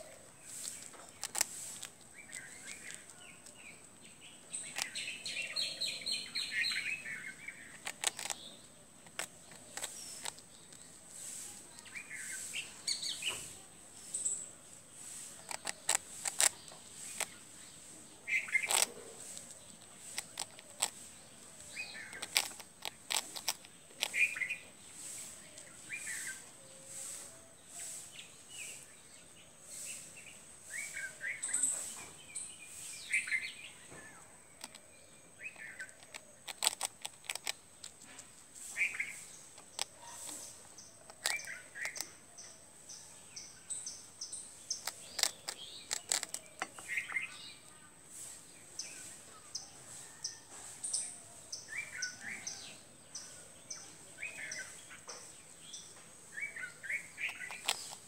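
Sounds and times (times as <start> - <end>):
birds chirping: 0.0 - 58.0
sharp clicks: 22.2 - 24.2, 35.8 - 38.3, 57.3 - 58.0.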